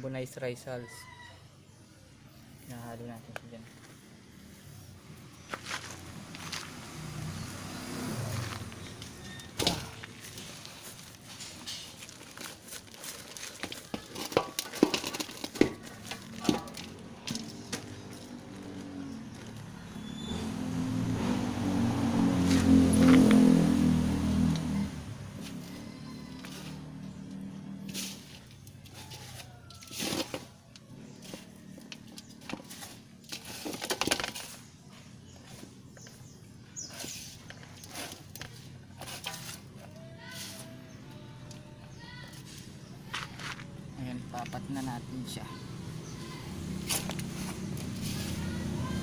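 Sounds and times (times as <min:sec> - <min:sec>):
soil scraping in metal basin: 0:08.0 - 0:18.8, 0:25.3 - 0:41.2, 0:46.8 - 0:49.0
plastic bag crinkling: 0:10.0 - 0:17.0.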